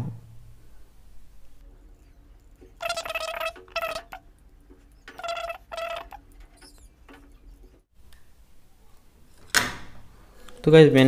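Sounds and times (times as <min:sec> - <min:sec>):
squeaky animal chirps: 0:01.9 - 0:07.8.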